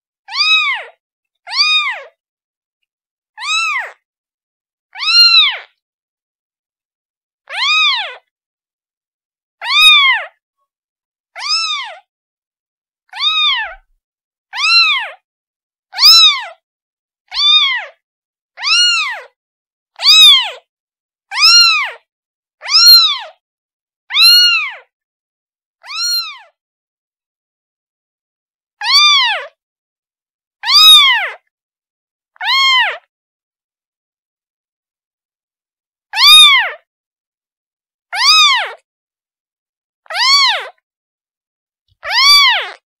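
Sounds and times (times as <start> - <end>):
kitten meowing: 0.3 - 2.2, 3.4 - 4.0, 5.0 - 5.7, 7.5 - 8.2, 9.6 - 10.4, 11.4 - 12.1, 13.1 - 13.9, 14.6 - 15.2, 15.9 - 16.6, 17.3 - 18.0, 18.6 - 19.4, 20.0 - 20.6, 21.3 - 22.0, 22.6 - 23.4, 24.1 - 24.9, 25.8 - 26.5, 28.8 - 29.6, 30.6 - 31.4, 32.4 - 33.1, 36.2 - 36.8, 38.2 - 38.8, 40.1 - 40.8, 42.0 - 42.8.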